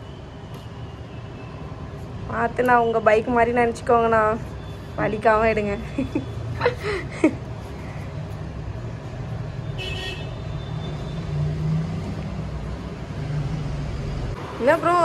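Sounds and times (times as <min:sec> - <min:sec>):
road traffic: 0:00.0 - 0:15.0
vehicle horn toot: 0:09.8 - 0:11.2.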